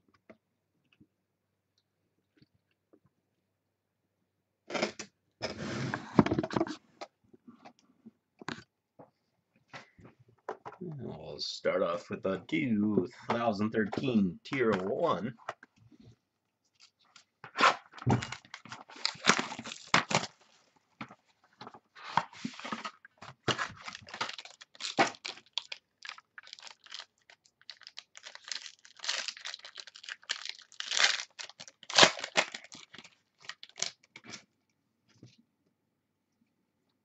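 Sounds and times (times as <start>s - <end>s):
plastic wrap ripping and crinkling: 17.5s - 20.5s, 22.5s - 34.3s.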